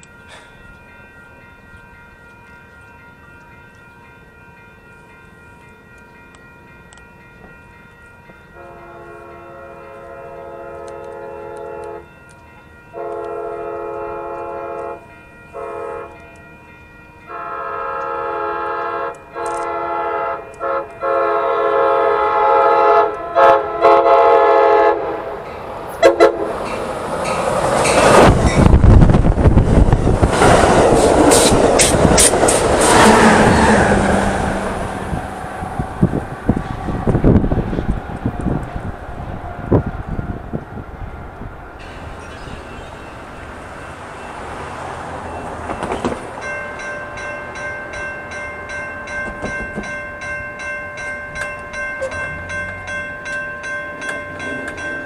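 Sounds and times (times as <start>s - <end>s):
train passing with rumble: 0.0s - 55.0s
train horn: 8.6s - 12.1s, 12.9s - 16.2s, 17.3s - 25.4s, 26.0s - 26.6s
wheels clacking over rail joints: 25.5s - 38.7s, 41.8s - 50.4s.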